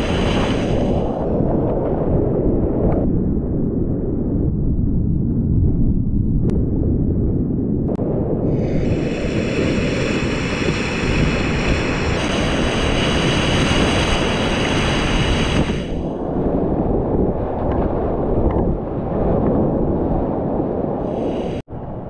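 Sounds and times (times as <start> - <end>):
spray hissing and splashing: 0.0 - 1.1, 8.6 - 16.0
wind buffeting microphone: 0.0 - 22.0.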